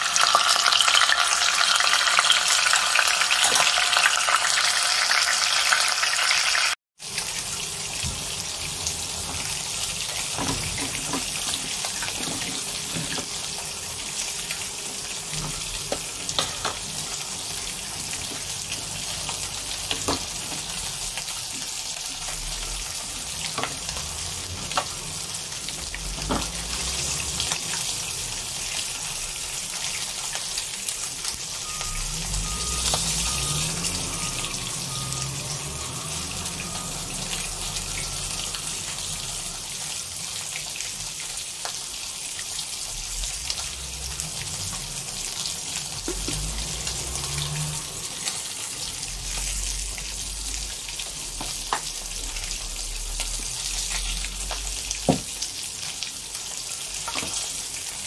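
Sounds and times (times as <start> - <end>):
fish sizzling in hot oil: 0.0 - 58.0
soup simmering with pops: 46.0 - 47.8.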